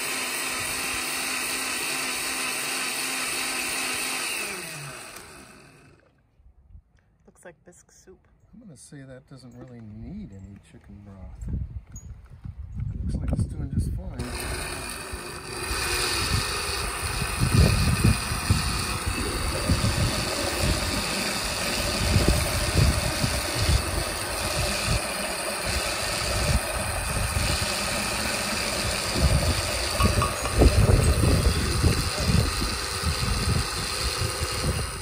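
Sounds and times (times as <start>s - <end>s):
blender motor running: 0.0s - 6.1s, 14.2s - 35.0s.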